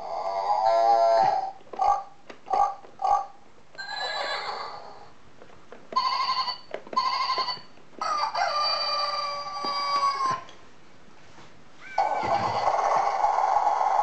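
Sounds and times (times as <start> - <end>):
toy playing farm animal calls: 6.0 - 10.4.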